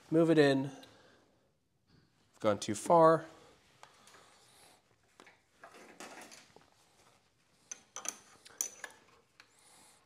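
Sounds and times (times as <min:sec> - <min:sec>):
metal chuck clicking and clinking: 0:07.7 - 0:09.1.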